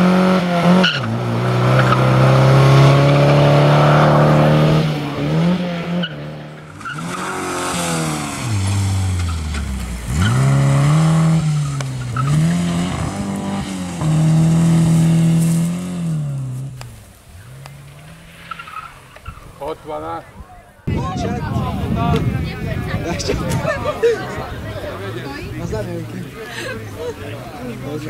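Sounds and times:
rally car engine revving: 0.0s - 20.3s.

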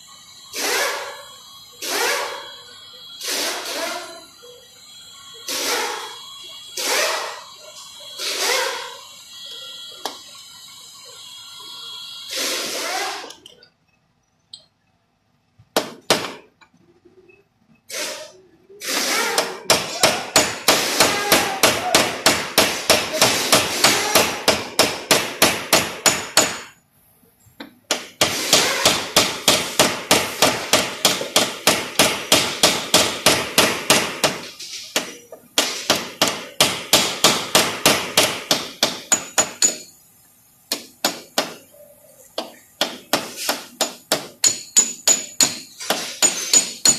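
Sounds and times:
small hammer tapping sheet metal: 27.9s - 39.9s, 42.4s - 46.9s.

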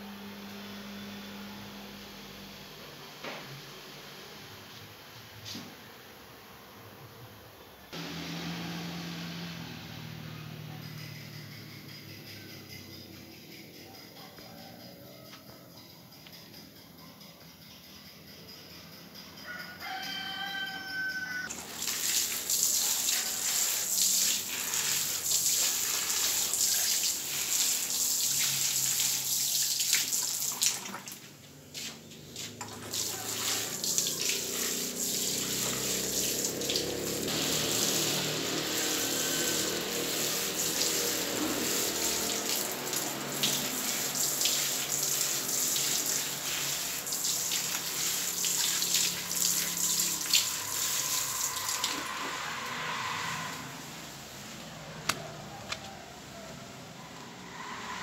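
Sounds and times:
water splashing onto soil: 21.5s - 31.2s, 32.4s - 52.0s.

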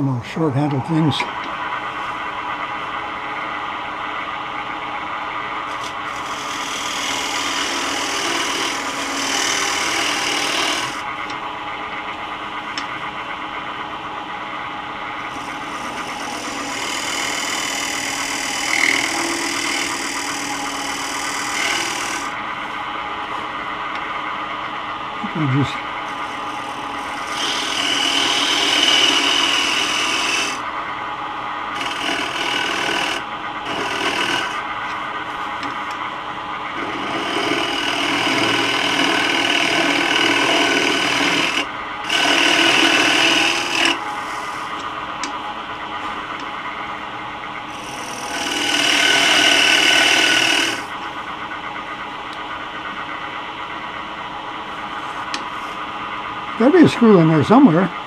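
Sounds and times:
wood lathe humming: 0.0s - 24.1s, 25.2s - 30.8s, 31.6s - 45.4s, 47.6s - 51.2s
scraper rasping on spinning wood: 6.1s - 11.1s, 15.3s - 22.4s, 26.1s - 30.6s, 31.8s - 34.6s, 36.8s - 44.7s, 47.8s - 50.9s.

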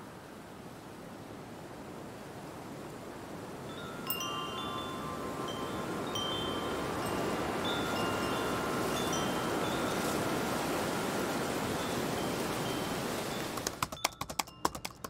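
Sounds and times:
chimes ringing: 3.7s - 15.0s.

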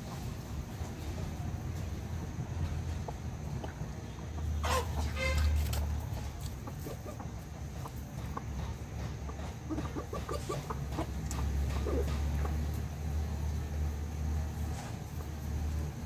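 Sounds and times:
chickens clucking: 0.0s - 16.0s
chicken squawking: 4.4s - 5.8s.

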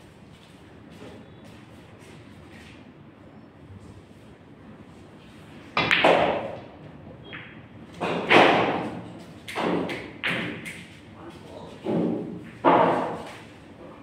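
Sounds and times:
cue striking ball: 5.8s - 6.6s, 7.4s - 9.0s, 11.9s - 13.3s
pool balls clacking: 5.8s - 6.7s, 7.4s - 10.9s, 11.8s - 13.3s.

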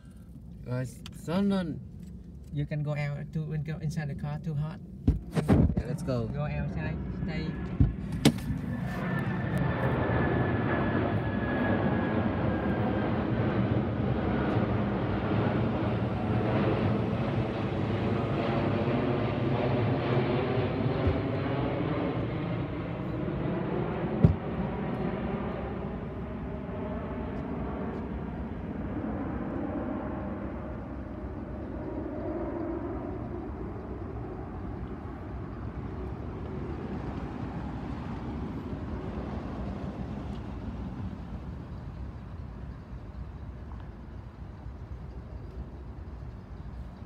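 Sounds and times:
jet airliner flying overhead: 0.0s - 47.0s
sharp knock: 24.2s - 24.4s.

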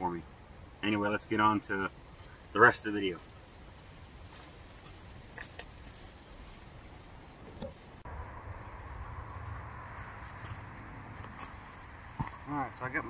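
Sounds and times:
soft clicks and rustles: 4.3s - 6.7s.

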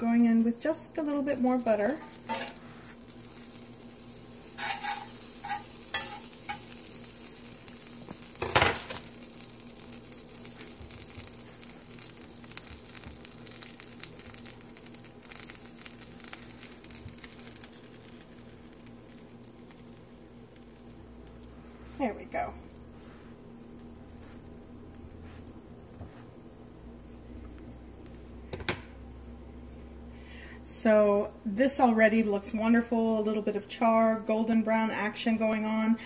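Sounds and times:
butter sizzling in skillet: 0.8s - 29.0s
utensils clinking on pan: 2.0s - 2.6s, 4.6s - 6.7s.

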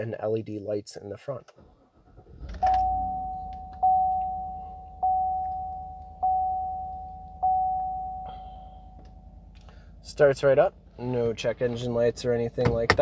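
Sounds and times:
car engine starting and running: 1.4s - 13.0s
dashboard warning chime dinging: 2.6s - 9.5s.

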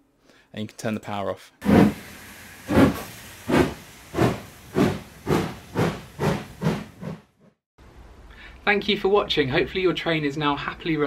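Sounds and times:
steam locomotive exhaust chuffing: 1.6s - 7.1s.

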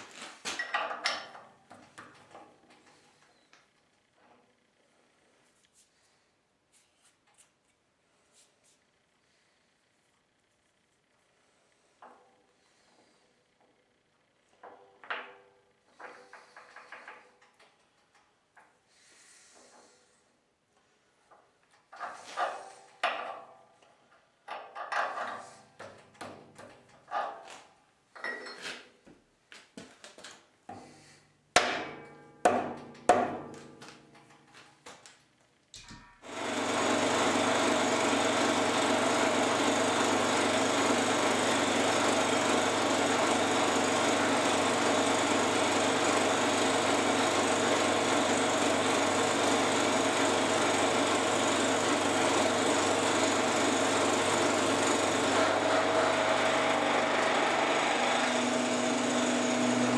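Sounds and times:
milling machine running: 36.3s - 59.9s.

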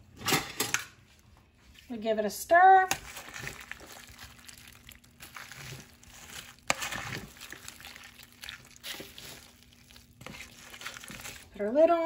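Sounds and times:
plastic liner crinkling: 2.9s - 11.7s.

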